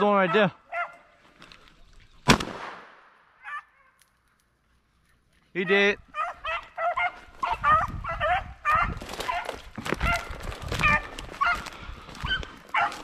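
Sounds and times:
dogs yelping barks: 0.1s - 1.2s, 3.4s - 4.0s, 5.6s - 13.0s
brush rustling and crunching: 7.0s - 13.0s.

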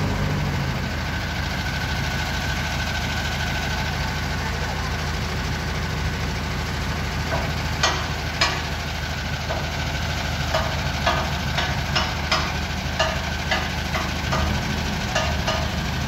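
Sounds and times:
diesel engine running: 0.0s - 16.0s.

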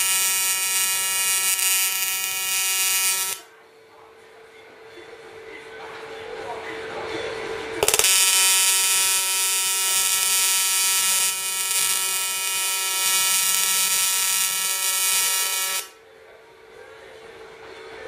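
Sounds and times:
welding arc buzzing: 0.0s - 3.4s, 7.8s - 16.0s.

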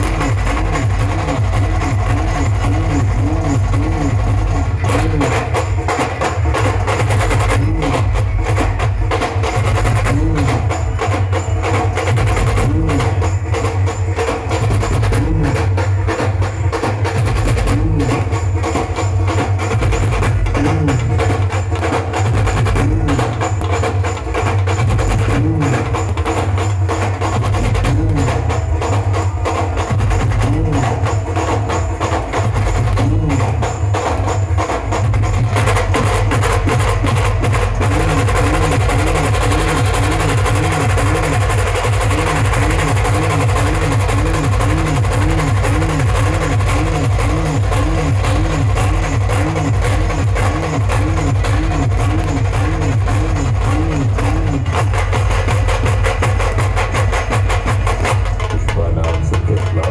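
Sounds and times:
heavy bass: 0.0s - 5.7s, 7.3s - 8.9s, 9.8s - 10.9s, 12.3s - 13.4s, 14.8s - 16.0s, 17.3s - 18.7s, 19.6s - 21.4s, 22.3s - 23.7s, 24.9s - 26.1s, 27.5s - 28.8s, 30.1s - 31.2s, 32.6s - 34.4s, 35.2s - 59.9s
heavy low beat: 0.0s - 11.0s, 12.1s - 13.8s, 14.6s - 59.9s
fast drumming: 0.0s - 59.9s.

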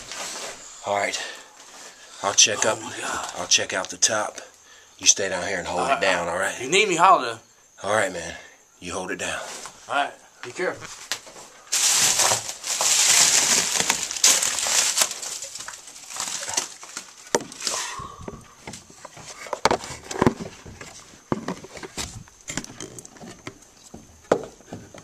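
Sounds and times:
rustling: 10.7s - 24.0s
knocks and creaks on wooden boards: 17.2s - 25.0s.

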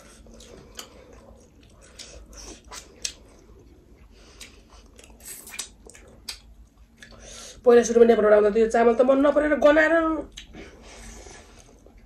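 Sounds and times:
people chewing food: 0.0s - 7.6s, 10.3s - 12.0s.

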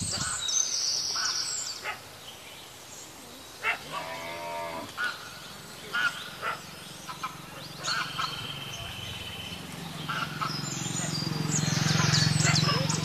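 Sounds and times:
cow mooing: 3.9s - 5.0s
bird chirps: 5.0s - 13.0s.

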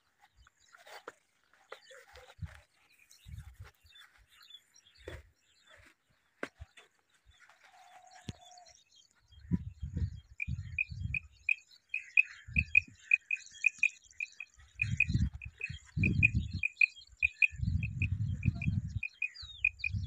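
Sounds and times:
quail calling: 10.4s - 20.0s.

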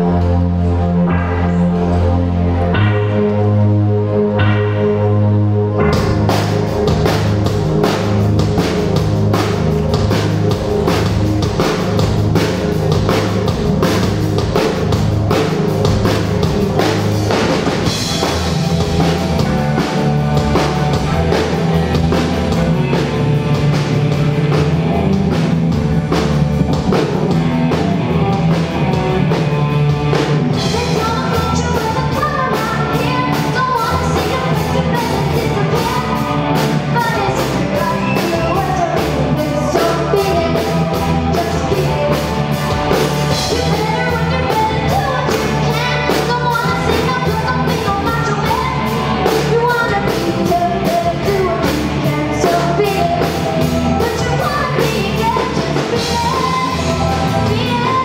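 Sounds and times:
drum kit beat: 0.0s - 3.6s, 4.4s - 58.0s
high electric guitar line: 0.0s - 58.0s
rock band playing: 0.0s - 58.0s
girl singing lead: 26.2s - 58.0s.

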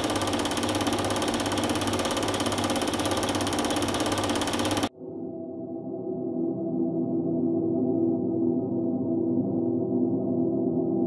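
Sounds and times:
film projector clattering: 0.0s - 4.9s.

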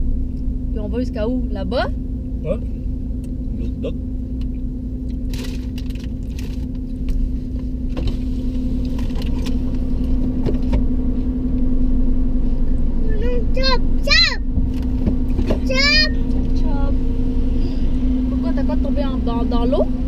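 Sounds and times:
car engine drone: 0.0s - 20.0s.

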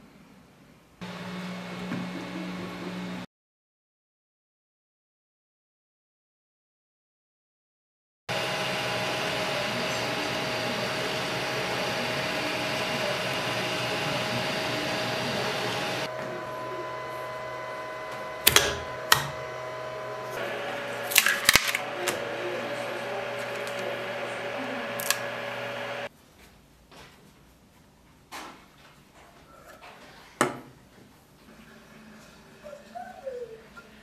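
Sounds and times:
stepper motor tones: 1.0s - 3.2s, 8.3s - 26.1s
printer fans running: 8.3s - 26.1s.

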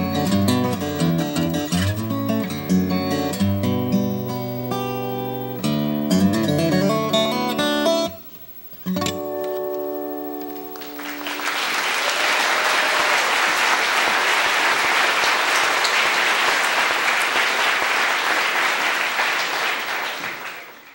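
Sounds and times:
acoustic guitar chord ringing: 0.0s - 11.3s
audience applauding: 10.7s - 20.9s.

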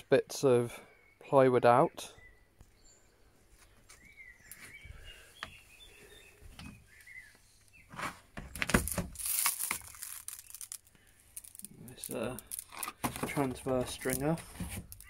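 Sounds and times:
faint bird chirps: 0.6s - 8.0s
rustling and scraping: 6.5s - 15.0s.

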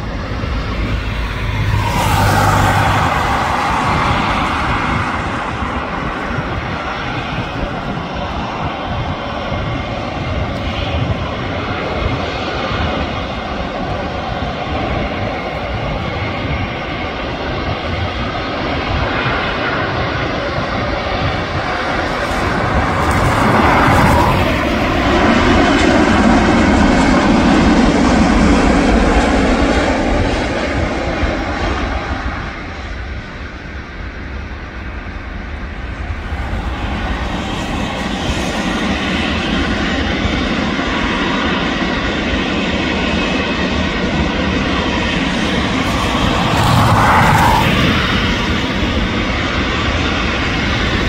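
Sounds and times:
airliner engines running: 0.0s - 51.0s
rising engine whine: 0.0s - 51.0s.

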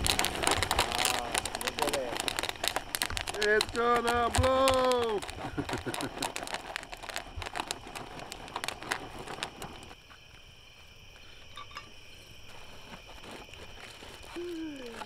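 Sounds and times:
popcorn popping: 0.0s - 10.0s
crickets chirping: 0.0s - 15.0s.

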